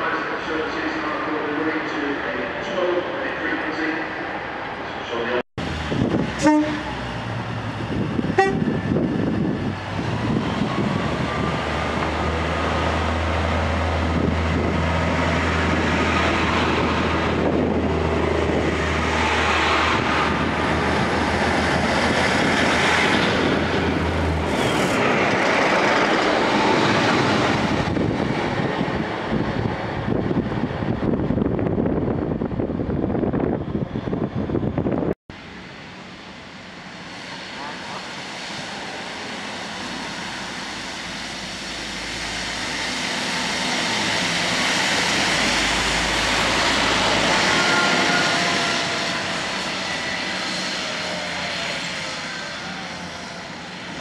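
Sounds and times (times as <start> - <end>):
carriages rumbling over rails: 0.0 - 54.0
quiet street noise: 0.0 - 54.0
train horn toot: 6.4 - 7.0, 8.4 - 8.8, 47.5 - 49.4.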